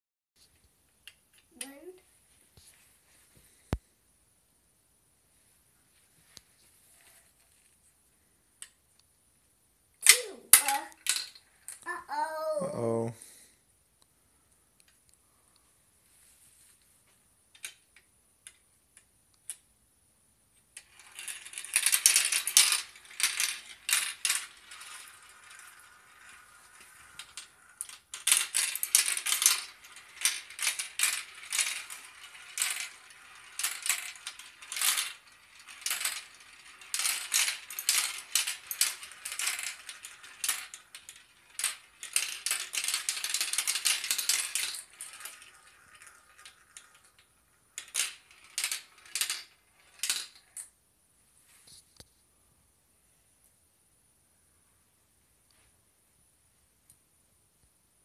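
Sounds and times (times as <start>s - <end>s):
marbles clattering down marble run: 10.0s - 12.6s, 20.7s - 50.7s.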